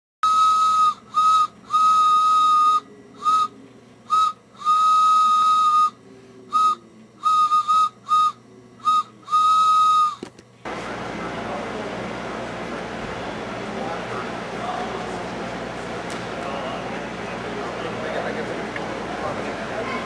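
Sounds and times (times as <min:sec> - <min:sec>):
high whistle blasts: 0:00.2 - 0:10.2.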